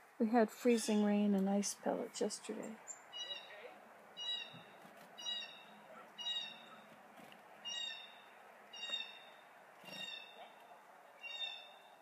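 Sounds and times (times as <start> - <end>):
bird harsh call: 3.1 - 3.6, 4.2 - 6.9, 7.6 - 10.4, 11.2 - 12.0.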